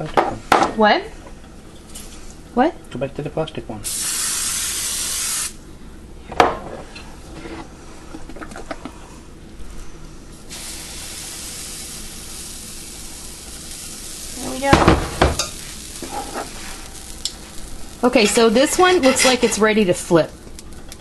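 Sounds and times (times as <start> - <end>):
batter sizzling on griddle: 3.9 - 5.6, 10.3 - 21.0
spraying hiss: 3.9 - 5.6, 10.4 - 19.7.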